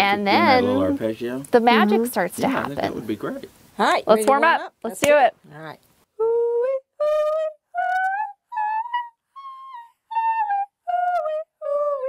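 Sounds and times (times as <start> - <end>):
woman singing vocal warm-up notes: 0.1 - 1.0.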